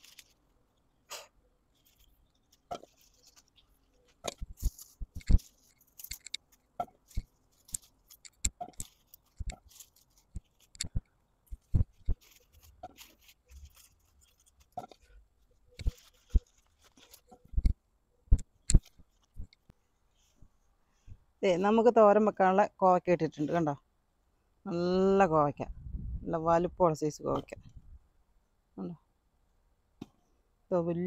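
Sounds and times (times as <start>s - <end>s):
leaves rustling: 0.0s - 17.7s
stems snapping: 1.1s - 15.1s, 15.7s - 19.7s.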